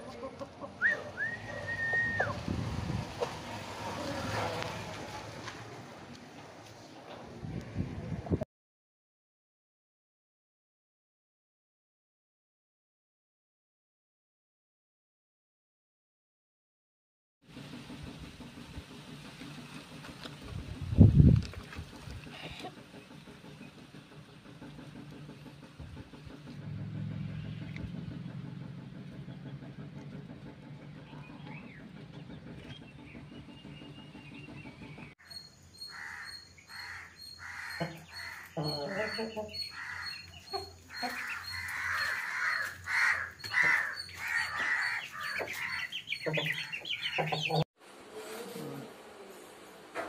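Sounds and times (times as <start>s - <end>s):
chickens clucking: 0.0s - 5.6s, 37.4s - 47.6s
low engine hum: 0.0s - 8.4s, 17.5s - 35.2s.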